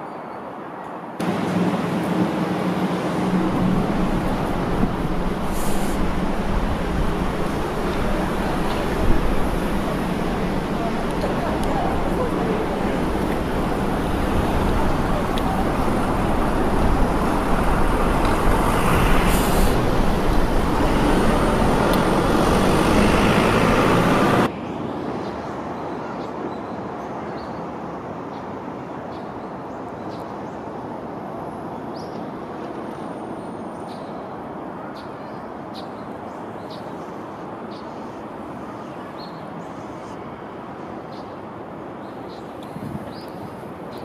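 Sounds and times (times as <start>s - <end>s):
outdoor city background: 0.0s - 44.0s
tram motor hum and wheel noise: 0.8s - 24.5s
brief hiss: 5.4s - 6.1s.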